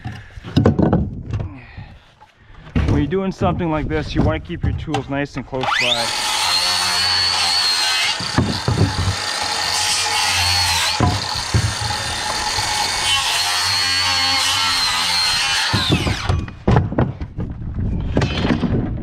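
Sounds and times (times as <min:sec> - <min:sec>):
boards knocking: 0:00.0 - 0:01.5, 0:08.1 - 0:09.8, 0:10.8 - 0:12.4, 0:15.5 - 0:19.0
saw winding down: 0:05.6 - 0:16.3
circular saw cutting wood: 0:05.6 - 0:16.5.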